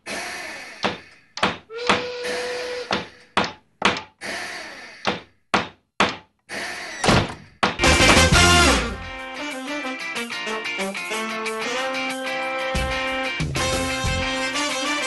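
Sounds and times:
hollow knocking thuds: 0.8s - 2.1s, 2.9s - 4.2s
strummed guitar music: 7.8s - 15.0s.

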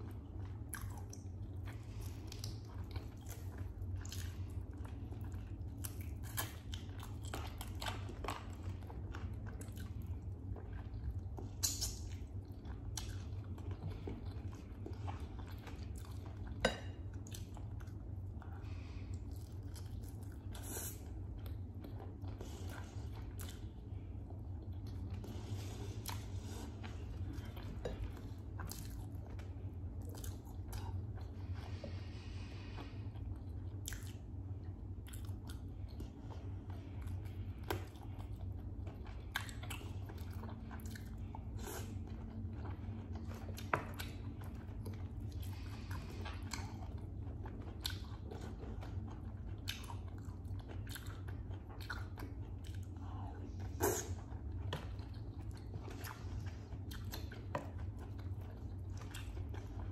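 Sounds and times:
chewing and biting food: 0.0s - 59.9s
steady low hum: 0.0s - 59.9s
wet mouth clicks: 11.6s - 12.0s.

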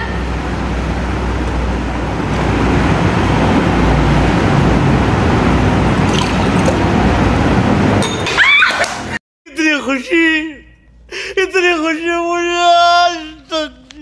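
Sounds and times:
water poured between glasses: 6.0s - 7.0s.

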